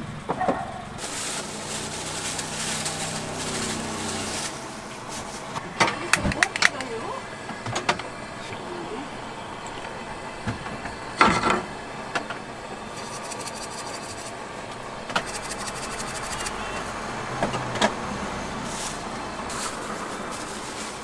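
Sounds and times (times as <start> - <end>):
fast ticks: 13.0 - 14.3, 15.2 - 16.6.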